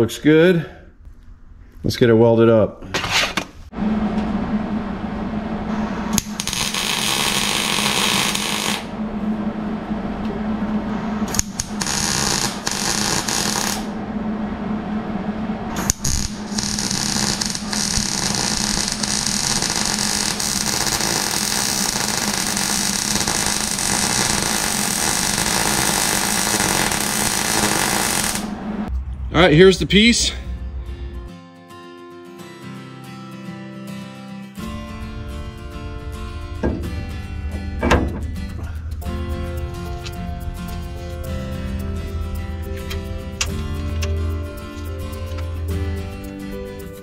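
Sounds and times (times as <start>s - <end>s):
steady low hum: 0.0s - 31.4s, 34.6s - 46.8s
welder arc crackling: 5.8s - 9.0s, 11.2s - 14.0s, 14.8s - 28.9s.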